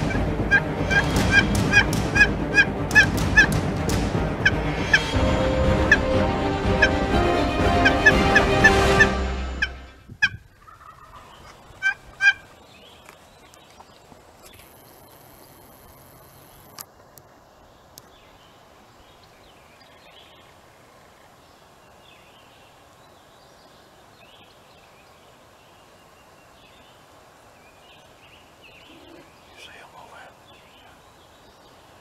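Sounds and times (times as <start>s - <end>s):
bird calls: 27.6s - 32.0s.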